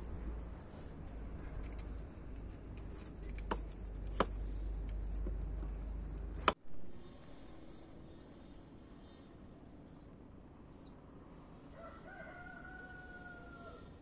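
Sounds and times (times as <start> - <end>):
steady low rumble: 0.0 - 8.0.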